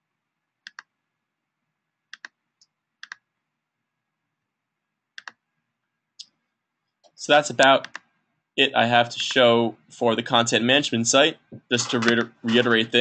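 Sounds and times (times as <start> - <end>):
computer mouse clicking: 0.6 - 0.9, 2.1 - 3.2, 5.2 - 5.4, 7.8 - 8.1, 11.8 - 12.6.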